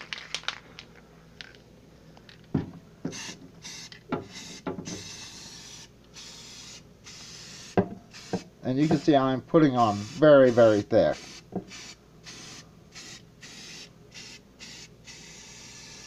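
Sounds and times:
spray paint can hissing: 3.1 - 9.1, 9.8 - 16.0.

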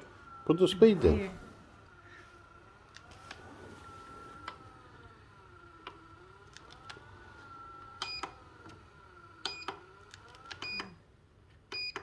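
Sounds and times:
foot massager motor whining: 0.0 - 11.1
control panel beeps: 11.7 - 12.0.

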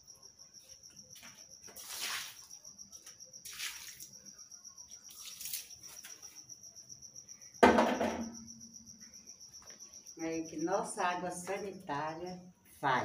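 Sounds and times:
crickets chirping: 0.0 - 13.0
water splashing across floor: 1.7 - 2.5, 3.4 - 4.2, 5.1 - 5.8.

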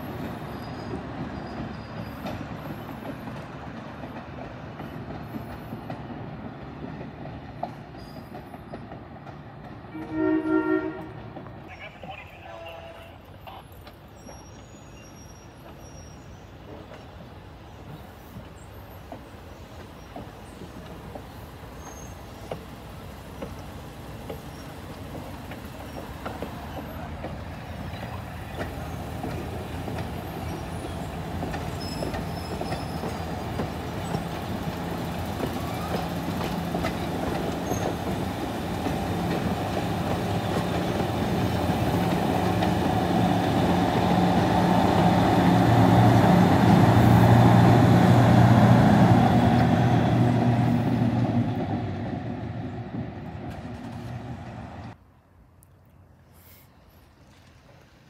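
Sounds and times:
train rolling on rails: 0.0 - 55.0
diesel locomotive engine running: 19.1 - 55.0.

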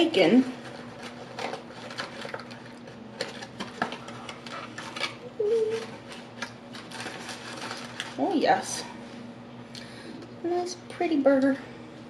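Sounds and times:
paper wrapper crinkling: 0.5 - 8.7
person humming: 5.3 - 5.9.

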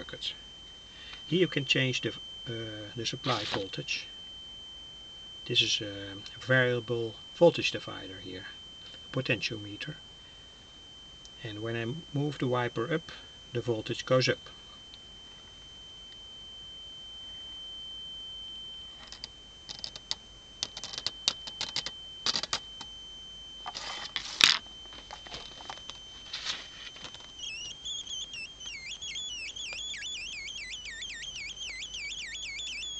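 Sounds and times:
electronic high whistle: 0.9 - 4.1, 24.8 - 32.9
crackling clicks: 19.0 - 22.9, 26.8 - 32.9.

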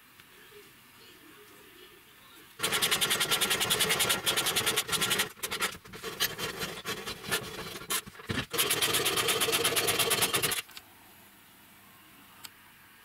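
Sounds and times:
scrapes and knocks: 2.6 - 8.6
pipe bender clicking rasp: 2.6 - 10.6.

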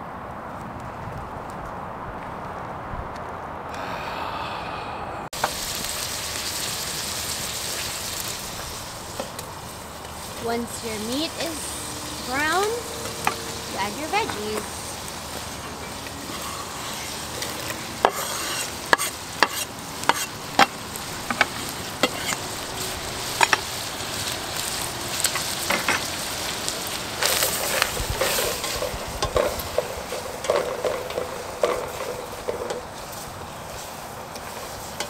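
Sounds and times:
meat and vegetables sizzling in pot: 5.4 - 35.0
wooden spoon scraping pot: 10.4 - 20.7.

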